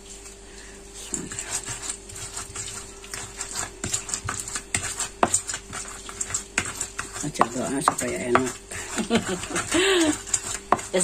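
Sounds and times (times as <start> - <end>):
pestle grinding in mortar: 1.2 - 11.0.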